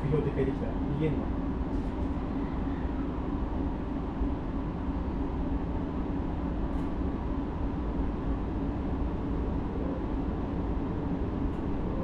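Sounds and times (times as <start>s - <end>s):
train running on rails: 0.0s - 12.0s.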